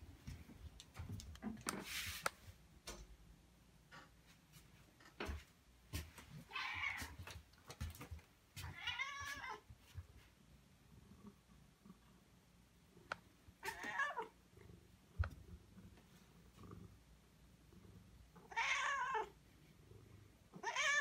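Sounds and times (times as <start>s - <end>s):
cat meowing: 6.5s - 7.2s, 8.6s - 9.6s, 13.6s - 14.3s, 18.4s - 19.3s, 20.6s - 21.0s.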